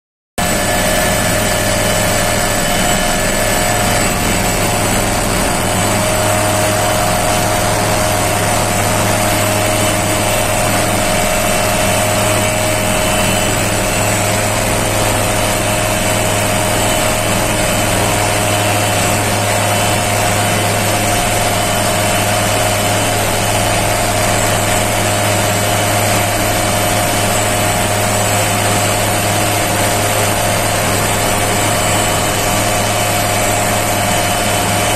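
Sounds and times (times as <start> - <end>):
helicopter hovering: 0.4 - 34.9.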